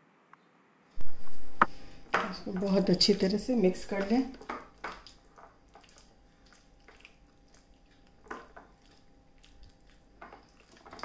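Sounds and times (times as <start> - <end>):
wet squishing of marinated chicken: 2.6 - 11.0.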